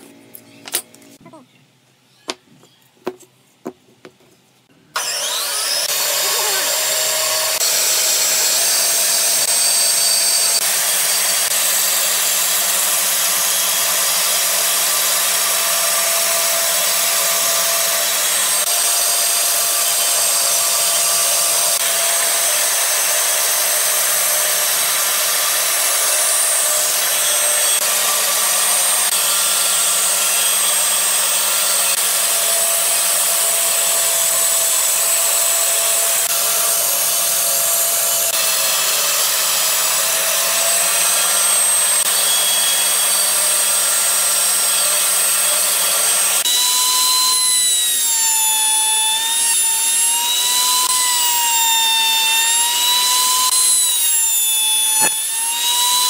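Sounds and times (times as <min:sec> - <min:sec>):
wooden blocks knocking on workbench: 0:03.0 - 0:04.3
band saw cutting wood: 0:04.9 - 0:56.0.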